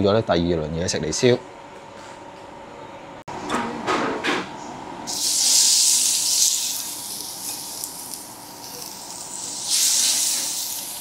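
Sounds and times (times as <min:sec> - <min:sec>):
octopus sizzling on grill: 0:05.1 - 0:11.0.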